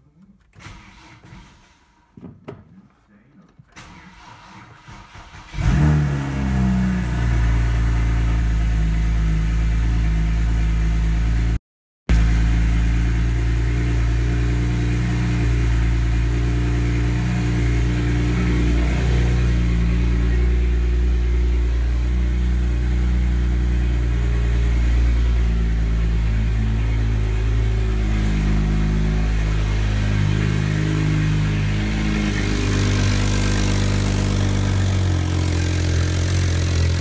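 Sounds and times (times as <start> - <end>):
car engine idling: 12.1 - 37.0.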